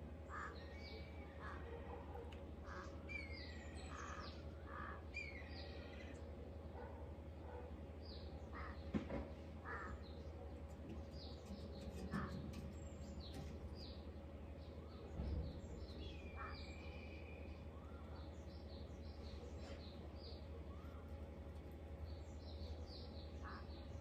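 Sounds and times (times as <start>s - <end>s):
birds chirping: 0.0s - 24.0s
bird long drawn-out call: 0.2s - 1.7s, 2.6s - 6.3s, 8.5s - 8.8s, 9.6s - 10.1s, 16.1s - 18.3s, 23.4s - 24.0s.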